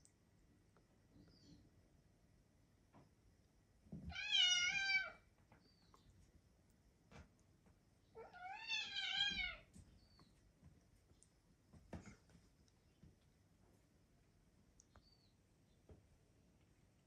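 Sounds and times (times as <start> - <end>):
cat meowing: 4.1 - 5.2, 8.2 - 9.7.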